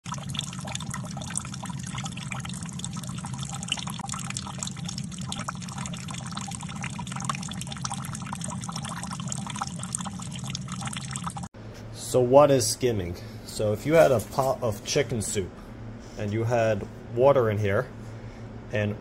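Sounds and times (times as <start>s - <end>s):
water pouring into bucket: 0.0s - 11.5s.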